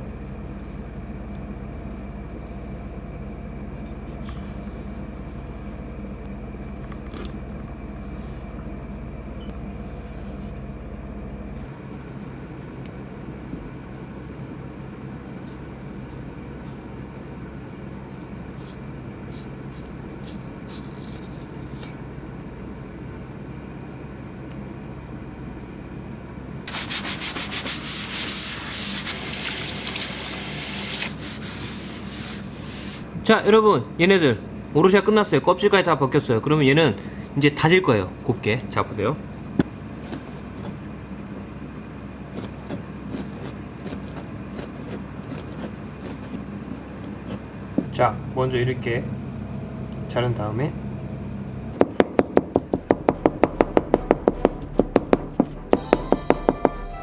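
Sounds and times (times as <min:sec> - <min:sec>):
steady low hum: 0:00.0 - 0:57.0
hands scrubbing plastic board: 0:26.7 - 0:30.1, 0:30.8 - 0:33.0
tap water running: 0:28.8 - 0:31.2.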